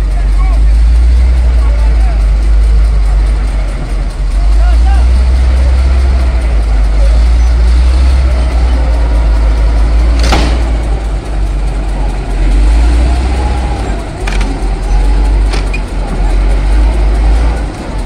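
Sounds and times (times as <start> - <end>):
bulldozer diesel rumbling: 0.0 - 18.0
metallic clank: 0.8 - 18.0.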